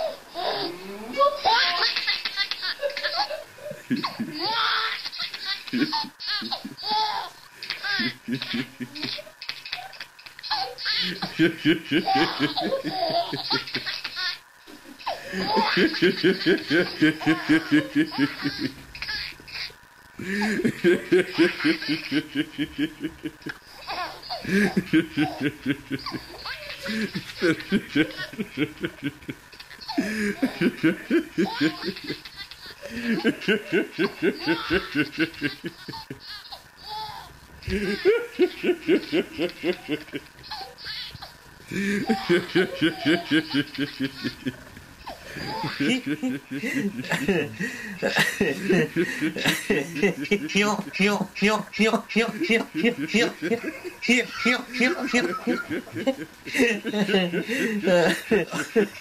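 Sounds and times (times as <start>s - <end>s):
baby laughing: 0.0s - 59.0s
man laughing: 2.6s - 4.8s, 11.0s - 13.9s, 15.1s - 18.8s, 20.2s - 23.6s, 24.3s - 36.4s, 37.6s - 40.3s, 41.7s - 59.0s.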